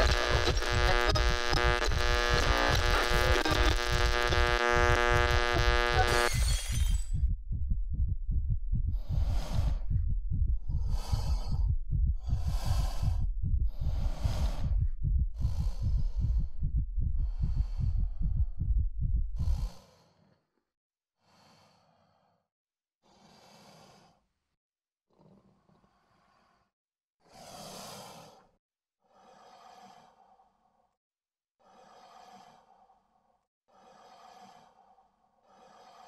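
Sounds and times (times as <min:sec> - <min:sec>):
deep rapid low pulsing: 0:00.0 - 0:06.1, 0:07.0 - 0:19.8
man breathing hard: 0:08.9 - 0:18.8, 0:33.7 - 0:36.0.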